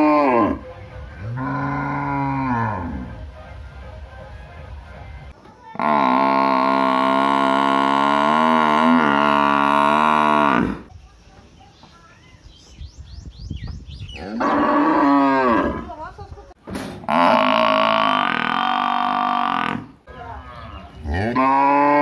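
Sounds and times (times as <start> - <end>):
cow mooing: 1.2 - 3.1, 5.8 - 10.9, 14.2 - 16.0, 17.1 - 20.0, 21.0 - 22.0
water buffalo calling: 17.1 - 22.0.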